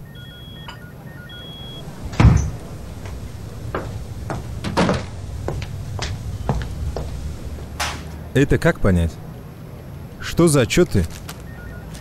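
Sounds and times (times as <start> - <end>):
door closing with heavy thud: 1.8 - 8.2.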